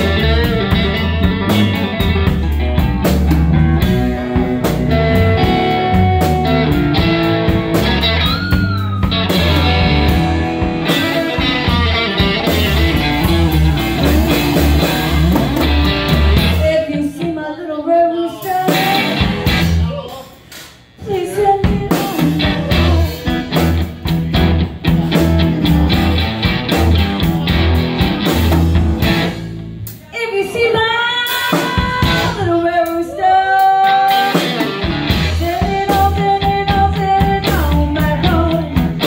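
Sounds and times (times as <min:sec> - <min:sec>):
cigar box guitar: 0:00.0 - 0:16.8, 0:21.7 - 0:29.9, 0:33.6 - 0:39.0
drum kit: 0:00.0 - 0:17.4, 0:18.4 - 0:39.0
electric lead guitar: 0:00.0 - 0:17.4, 0:18.6 - 0:19.9, 0:21.7 - 0:29.8, 0:31.3 - 0:39.0
bass guitar: 0:00.0 - 0:17.5, 0:18.3 - 0:20.4, 0:21.0 - 0:39.0.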